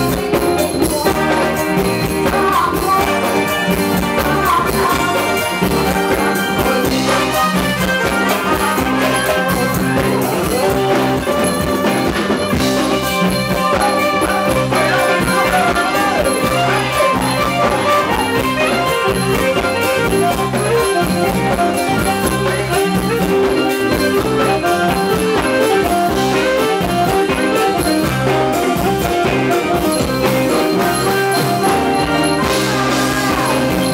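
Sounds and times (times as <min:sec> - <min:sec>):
live band dance music: 0:00.0 - 0:33.9.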